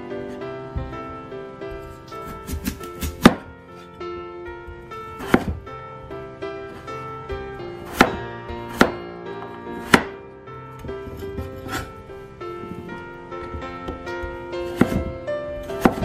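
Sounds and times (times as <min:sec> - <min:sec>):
knife cutting onto wooden board: 0:14.7 - 0:15.1, 0:15.8 - 0:16.0.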